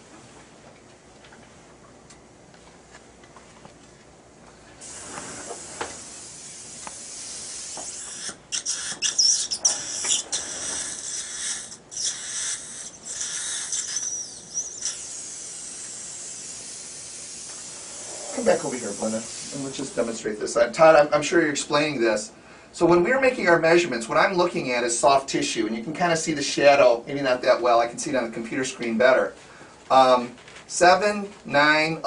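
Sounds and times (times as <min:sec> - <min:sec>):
dental equipment hissing: 0:04.8 - 0:20.6.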